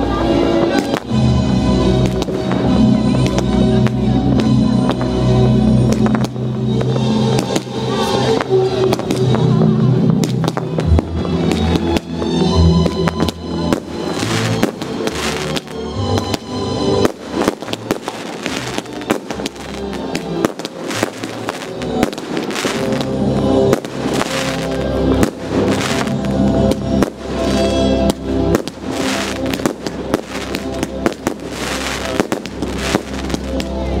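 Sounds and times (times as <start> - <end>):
fireworks bursting and crackling: 0.0 - 34.0
music playing: 0.0 - 34.0.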